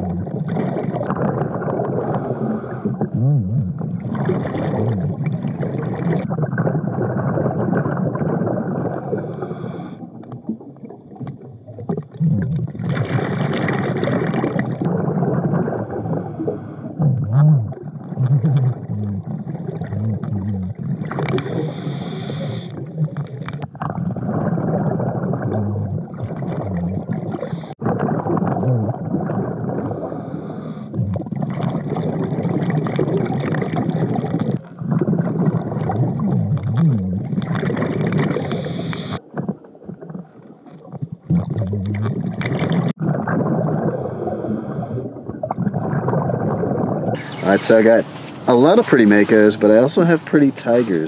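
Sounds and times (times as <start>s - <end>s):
hissing bubble bursts: 0.0s - 39.2s, 41.2s - 51.0s
muffled rush of water and air: 43.1s - 51.0s.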